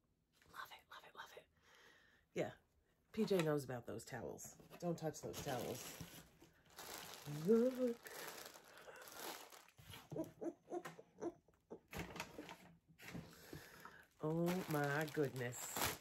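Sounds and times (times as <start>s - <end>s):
plastic bag crinkling: 5.3s - 9.9s, 13.9s - 16.0s.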